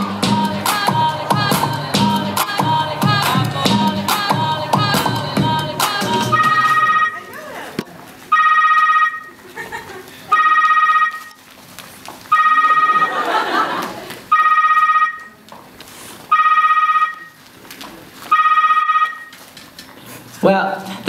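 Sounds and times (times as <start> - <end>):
telephone ringing: 6.3 - 7.3, 8.3 - 9.4, 10.3 - 11.3, 12.3 - 13.3, 14.3 - 15.3, 16.3 - 17.4, 18.3 - 19.3.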